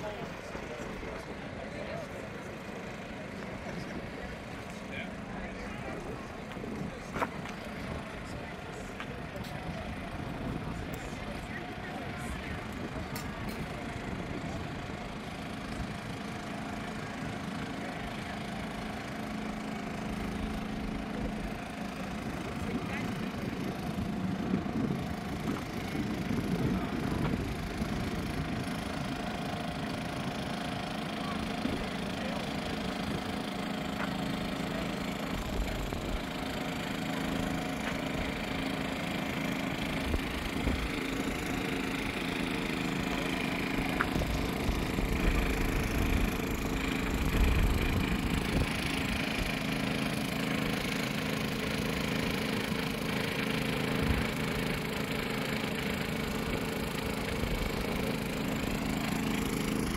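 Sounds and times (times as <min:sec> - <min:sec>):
engine running steadily: 0:00.0 - 0:59.9
wind rumble on microphone: 0:22.4 - 0:29.1.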